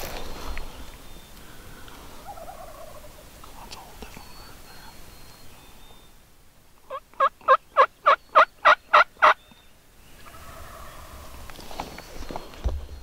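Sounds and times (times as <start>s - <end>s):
turkey yelping: 2.2s - 3.2s, 6.9s - 9.4s, 10.2s - 11.4s.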